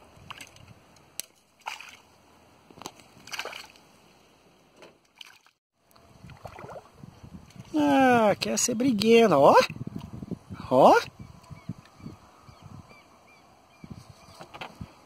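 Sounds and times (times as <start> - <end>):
water lapping and sloshing: 0.2 - 2.2, 2.8 - 4.4, 5.0 - 7.6.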